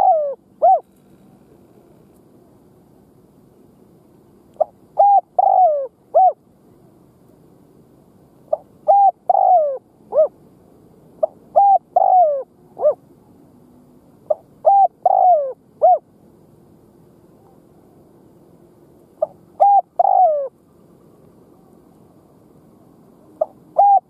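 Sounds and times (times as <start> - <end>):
dove cooing: 0.0 - 1.2, 4.6 - 6.4, 8.5 - 10.4, 11.2 - 13.0, 14.3 - 16.1, 19.2 - 20.6, 23.3 - 24.0.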